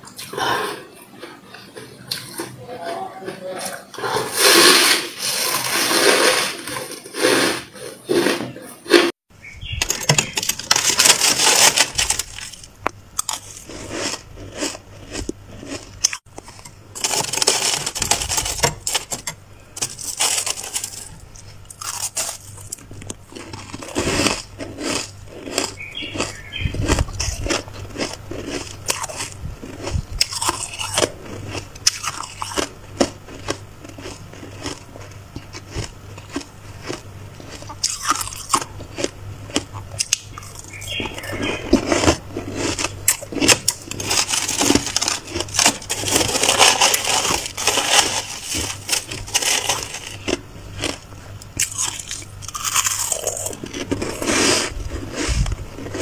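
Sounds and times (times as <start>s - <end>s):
frost being scraped: 3.5s - 9.2s, 16.5s - 19.2s, 19.8s - 22.8s, 40.6s - 51.0s, 53.7s - 56.0s.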